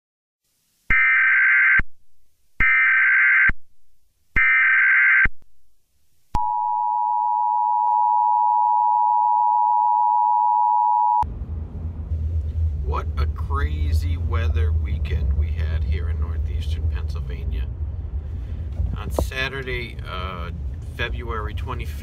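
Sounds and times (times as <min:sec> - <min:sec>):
car cabin rumble: 0:11.3 - 0:22.0.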